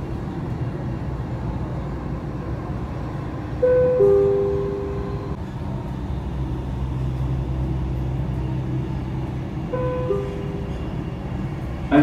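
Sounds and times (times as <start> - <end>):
train running hum: 0.0 - 12.0
two-note falling chime: 3.6 - 5.3, 9.8 - 10.7.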